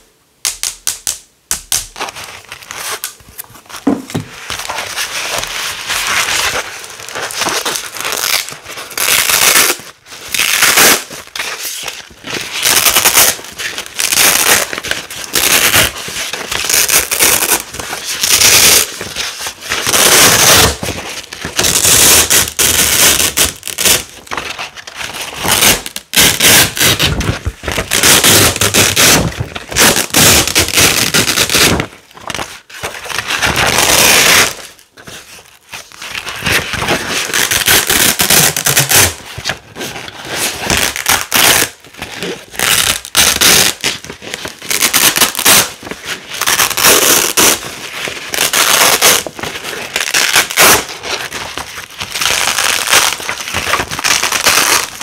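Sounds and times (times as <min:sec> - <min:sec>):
velcro ripping apart: 0:04.5 - 0:20.8, 0:21.5 - 0:24.2, 0:25.2 - 0:31.8, 0:33.1 - 0:34.6, 0:36.7 - 0:39.2, 0:40.5 - 0:49.3, 0:49.9 - 0:51.0, 0:52.0 - 0:55.0.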